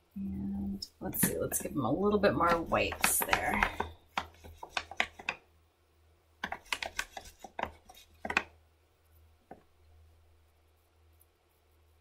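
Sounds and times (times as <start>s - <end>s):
drawing tools tapping and clicking: 1.1s - 1.7s, 2.3s - 5.4s, 6.4s - 8.6s.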